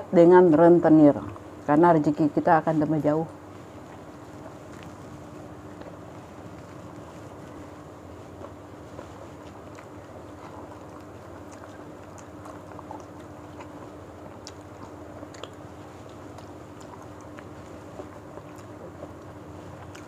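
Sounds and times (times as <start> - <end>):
steady low hum: 0.0 - 20.0
people chewing food: 3.3 - 20.0
mouth smacking clicks: 10.7 - 17.5.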